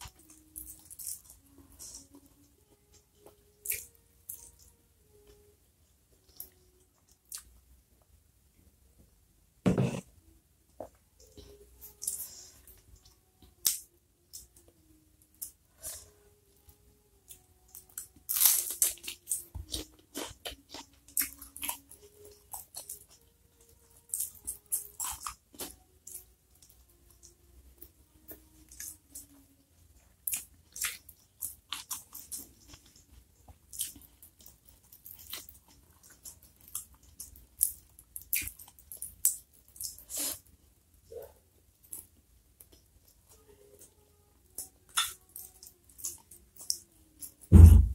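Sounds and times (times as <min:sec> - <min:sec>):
crunching and wet chewing: 0:00.0 - 0:02.5, 0:15.4 - 0:40.7, 0:44.5 - 0:47.4.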